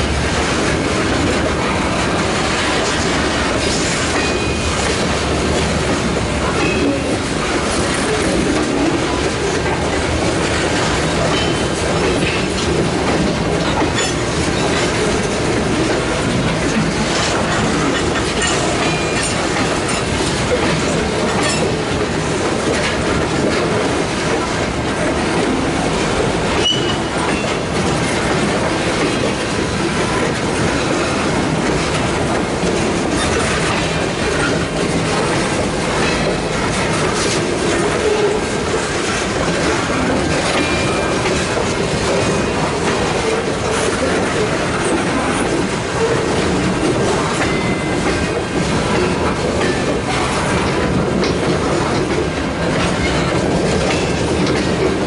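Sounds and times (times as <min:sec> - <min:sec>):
train wheels rumbling on rail: 0:00.0 - 0:55.0
wheels clicking over rail joints: 0:00.0 - 0:55.0
high wheel squeals: 0:26.6 - 0:27.1.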